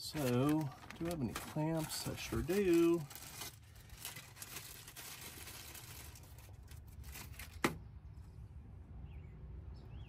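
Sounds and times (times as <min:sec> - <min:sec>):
packaging rustling and crinkling: 0:00.0 - 0:07.8.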